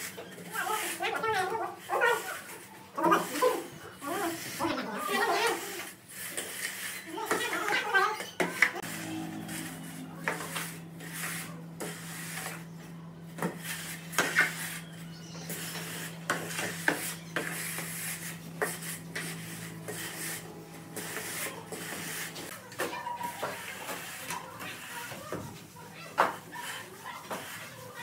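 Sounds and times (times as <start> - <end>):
metal straightedge scraping mortar: 5.4 - 12.7, 13.4 - 20.4
low hum: 8.8 - 22.6.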